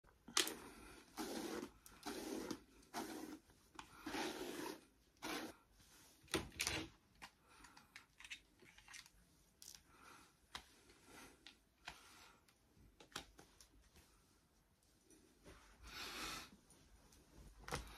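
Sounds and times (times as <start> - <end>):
hairbrush strokes through hair: 1.0 - 6.2.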